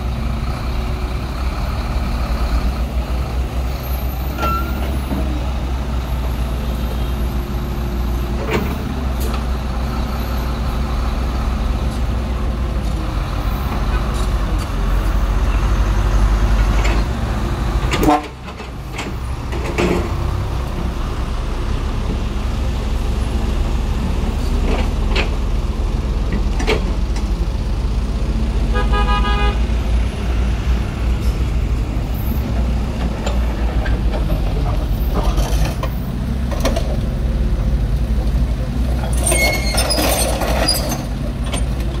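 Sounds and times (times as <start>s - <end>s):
diesel engines rumbling: 0.0s - 42.0s
vehicle horn tooting: 28.7s - 29.6s.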